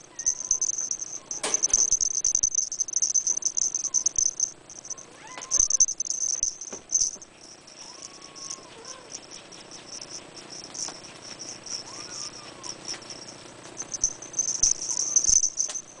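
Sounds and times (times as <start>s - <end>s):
high-pitched rattling: 0.0s - 16.0s
kittens mewing: 3.4s - 6.0s, 7.8s - 9.3s.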